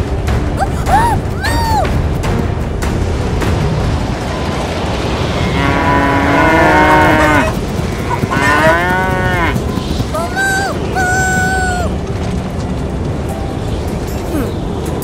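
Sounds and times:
steady low rumble: 0.0 - 15.0
cows mooing: 5.3 - 9.6.

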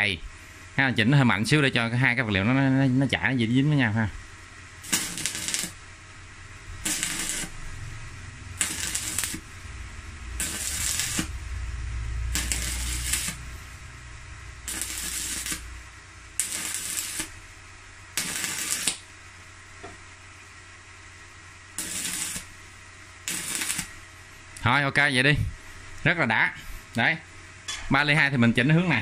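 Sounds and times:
welding arc crackling and sizzling: 4.3 - 20.6, 21.3 - 24.9.

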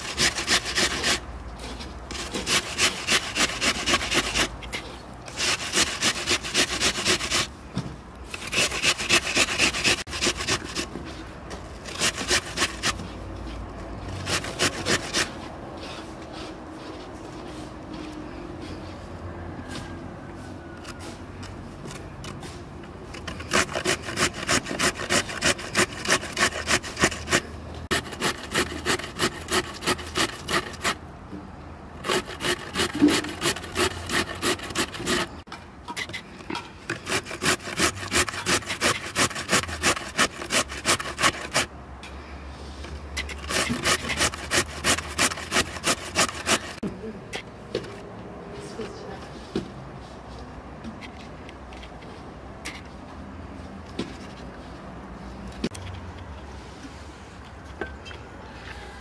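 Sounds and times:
rhythmic rasping strokes: 43.3 - 46.8.

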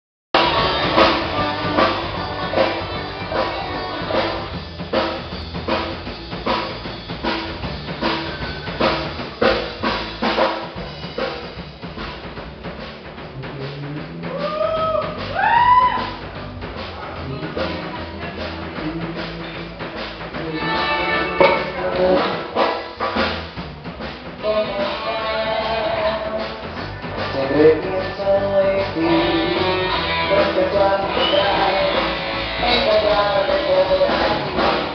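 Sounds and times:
rock music: 0.3 - 34.9
sliding bent guitar notes: 0.4 - 10.1, 16.2 - 22.8.

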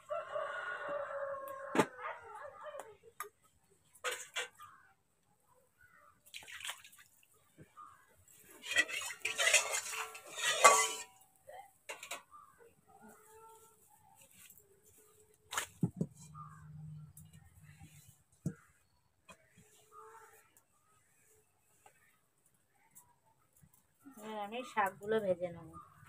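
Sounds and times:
metal pots clattering: 4.0 - 4.6, 8.5 - 11.2, 11.9 - 12.3.

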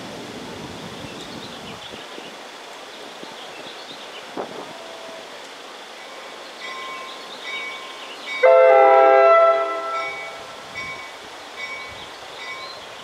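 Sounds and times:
crossing warning bells ringing: 6.0 - 13.0
train horn blast: 8.4 - 10.7.

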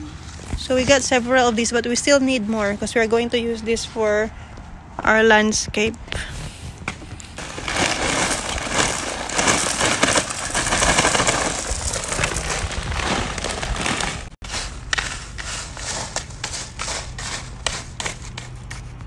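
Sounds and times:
gravel pouring from plastic bag: 7.4 - 17.5.

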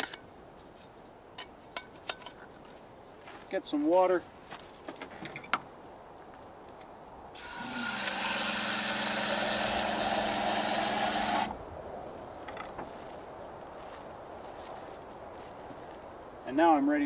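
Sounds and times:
water spraying into container: 7.4 - 11.5
electric water pump humming: 7.4 - 11.6.

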